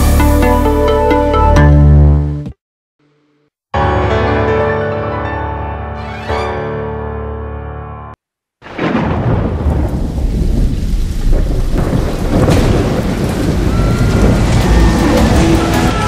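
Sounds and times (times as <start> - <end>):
piano jingle: 3.7 - 8.2, 13.4 - 16.0
low rolling thunder: 8.6 - 16.0
steady rain: 8.7 - 16.0.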